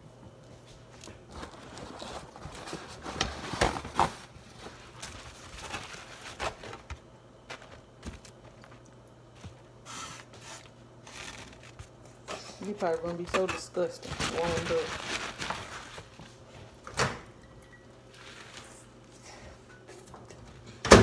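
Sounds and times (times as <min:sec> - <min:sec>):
faint steady hum: 0:00.0 - 0:21.0
styrofoam container scraping: 0:09.9 - 0:16.2.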